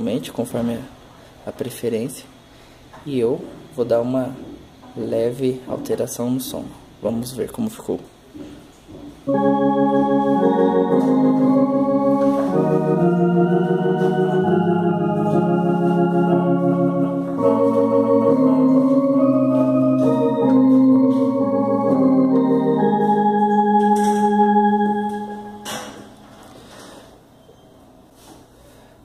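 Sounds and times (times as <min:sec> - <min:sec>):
electronic organ chords and melody: 0:09.3 - 0:26.2.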